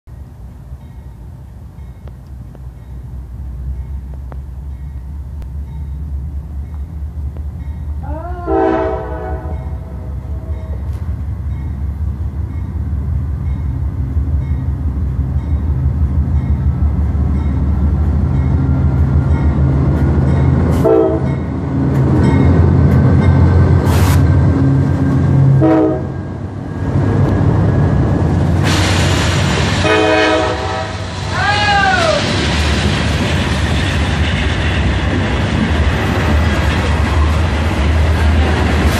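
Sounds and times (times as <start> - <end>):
diesel locomotive engine rumble: 0.1 - 38.9
locomotive horn blasts: 8.3 - 10.9, 20.8 - 21.4, 25.5 - 26.2, 29.8 - 31.1.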